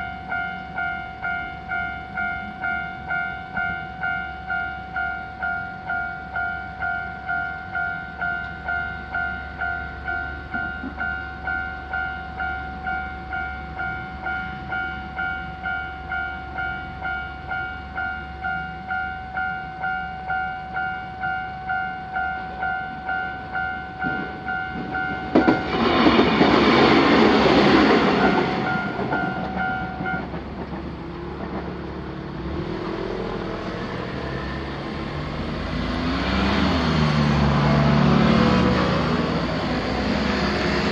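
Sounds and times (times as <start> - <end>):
level-crossing bell two-tone dings: 0.0 - 25.8
electric train passing: 0.0 - 40.9
train wheels on rails: 0.0 - 40.9
road vehicle passing: 30.8 - 40.9.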